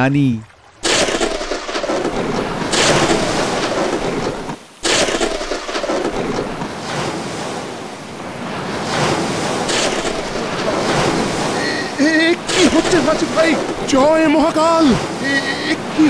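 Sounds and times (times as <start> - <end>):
surf: 0.0 - 16.0
heavy rain: 0.8 - 16.0
thunder crashes: 0.9 - 7.2, 8.8 - 14.3
wind roaring: 1.0 - 16.0.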